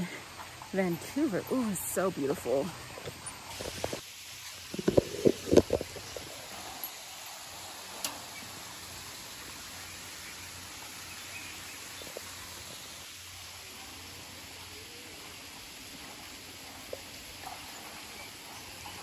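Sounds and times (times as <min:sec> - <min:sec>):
stream hissing over rocks: 0:00.0 - 0:19.0.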